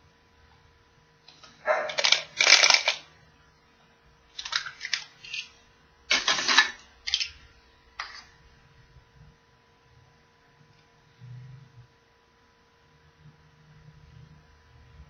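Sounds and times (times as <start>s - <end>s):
plastic toy parts clicking and rattling: 1.3s - 3.0s, 4.4s - 5.5s, 6.1s - 7.4s.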